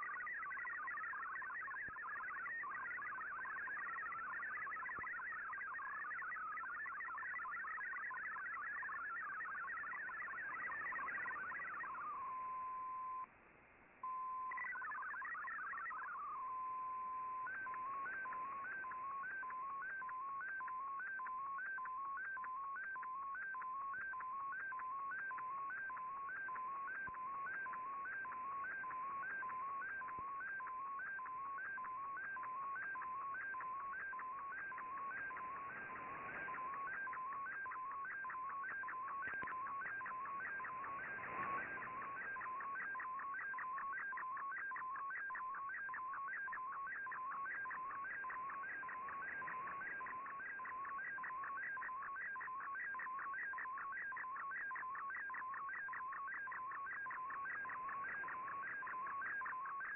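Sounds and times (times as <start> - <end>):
warbling data tones: 0.0 - 12.8, 14.1 - 59.9
radio noise hiss: 24.2 - 59.9.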